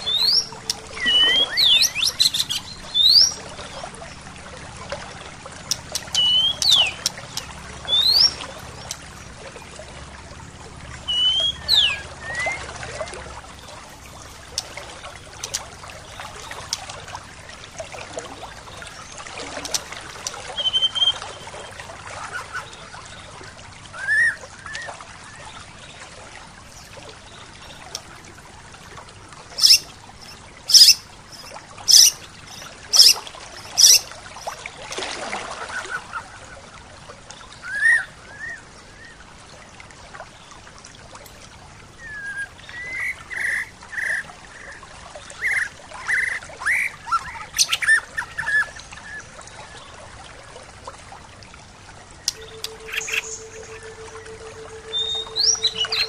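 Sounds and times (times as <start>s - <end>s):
birds calling: 0.0s - 17.4s, 18.1s - 23.3s, 29.5s - 36.5s, 42.0s - 49.9s, 52.2s - 56.0s
stream flowing: 0.0s - 56.0s.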